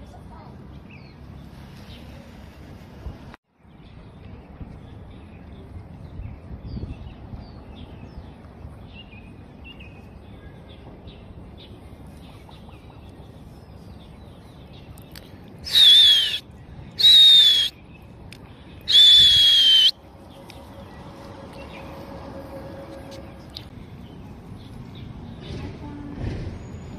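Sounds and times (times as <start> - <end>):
loud high whistled calls: 15.6 - 17.8, 18.9 - 20.0.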